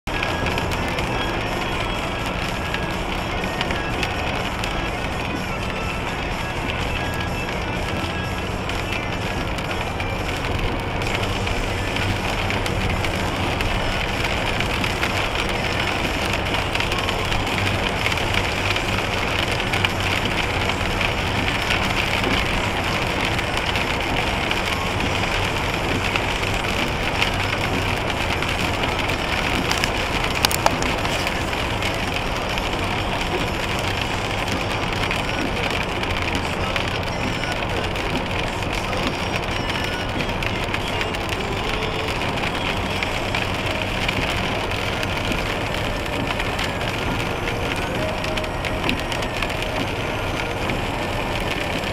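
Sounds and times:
low engine hum: 0.0s - 51.9s
road and tyre noise: 0.0s - 51.9s.

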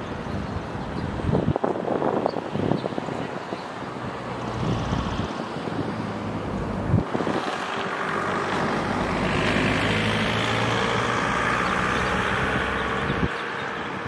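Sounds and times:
vehicle passing: 3.2s - 14.0s.

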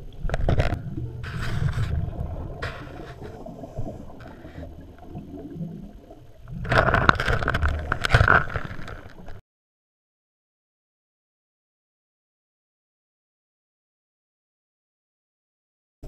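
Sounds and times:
scuba regulator exhaust bubbles: 0.0s - 8.6s
low water rumble: 0.0s - 9.4s.

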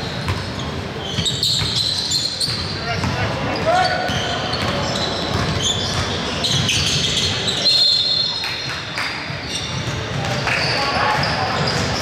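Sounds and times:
sneakers squeaking on floor: 0.0s - 12.0s
basketball bouncing: 4.1s - 7.0s.

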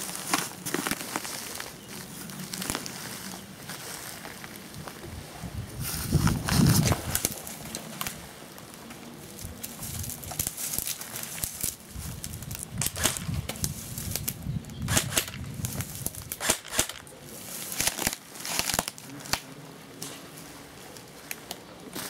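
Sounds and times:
rustling in undergrowth: 0.0s - 22.0s
sharp cracks: 9.6s - 17.1s, 17.7s - 19.6s.

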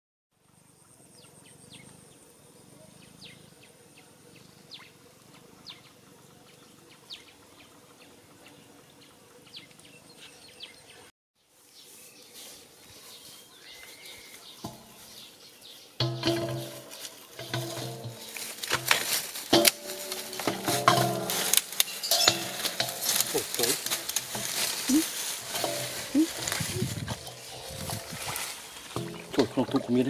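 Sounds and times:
rustling background noise: 11.4s - 30.0s
bird chirps: 13.0s - 17.5s, 21.8s - 22.8s
insect trill: 16.0s - 30.0s.

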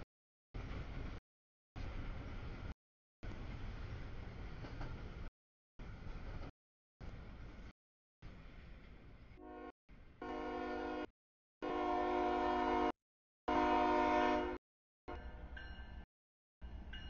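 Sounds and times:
low train rumble: 0.6s - 1.2s, 1.8s - 12.9s, 13.5s - 17.0s
locomotive air horn blasts: 9.4s - 14.6s.

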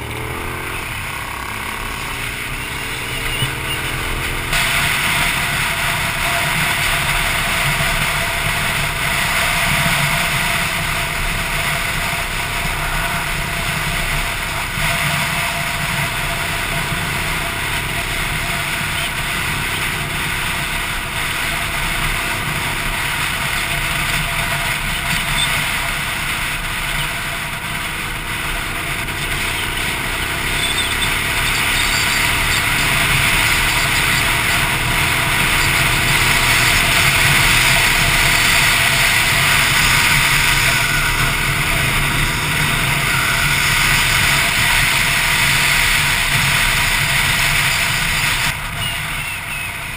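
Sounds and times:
motorcycle engine running: 0.0s - 49.9s
wind and road noise: 0.0s - 49.9s.

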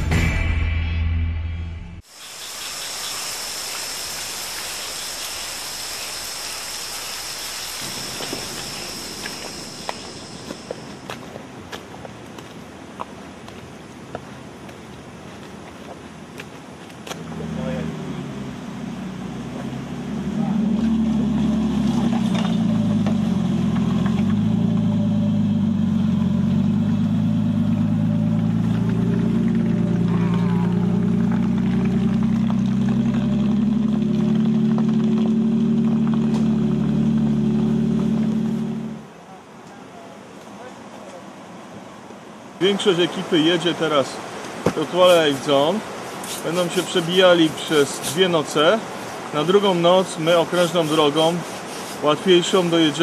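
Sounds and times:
thin high steady tone: 2.0s - 11.2s
steady rain hiss: 2.0s - 25.0s, 25.6s - 53.0s
vehicle engine running: 17.3s - 39.0s.

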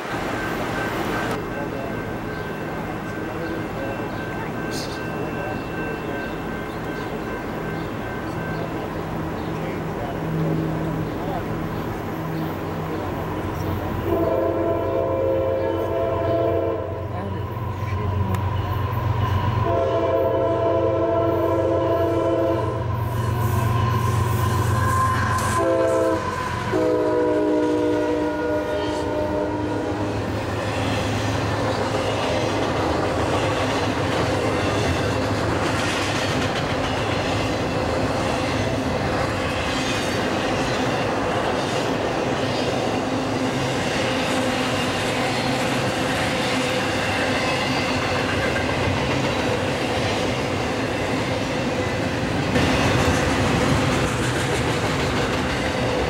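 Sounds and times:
train cars rumbling on rails: 0.0s - 56.0s
locomotive horn: 14.0s - 17.2s, 19.6s - 30.2s.

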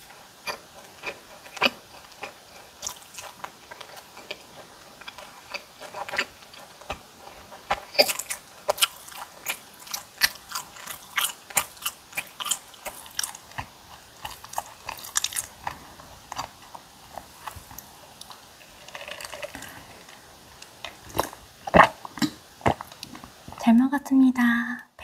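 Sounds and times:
wet chewing crunches: 0.0s - 23.4s.

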